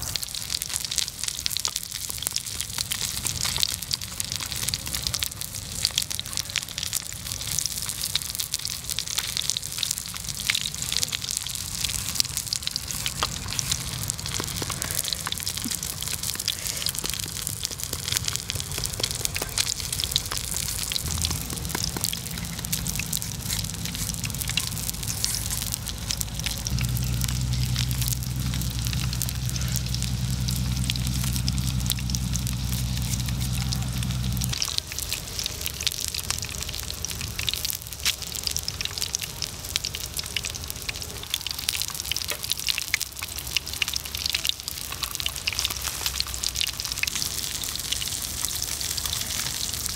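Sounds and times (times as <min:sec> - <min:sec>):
low hum: 0:11.8 - 0:37.4.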